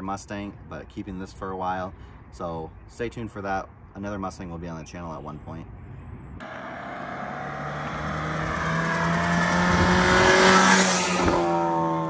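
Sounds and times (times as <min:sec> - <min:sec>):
car engine driving past: 0:06.4 - 0:12.0.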